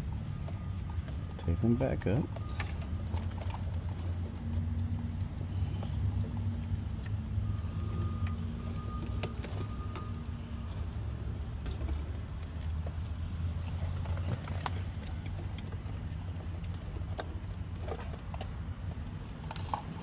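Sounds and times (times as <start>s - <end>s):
wires rustling and clicking: 0.1s - 20.0s.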